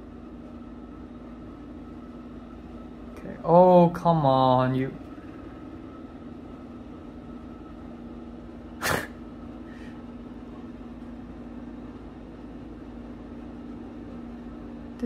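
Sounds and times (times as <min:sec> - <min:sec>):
exhaust fan hum: 0:00.0 - 0:15.0
brief sharp burst of noise: 0:08.8 - 0:09.2.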